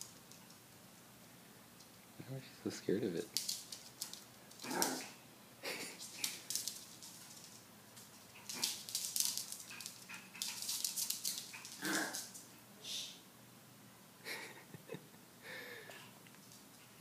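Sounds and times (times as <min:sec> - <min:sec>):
claws clicking on tile floor: 0:03.3 - 0:12.5.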